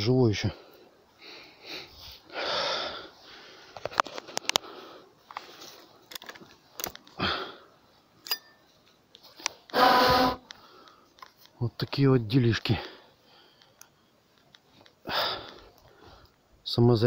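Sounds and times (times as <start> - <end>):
light rustles: 3.7 - 7.2
person sniffing: 9.7 - 10.8.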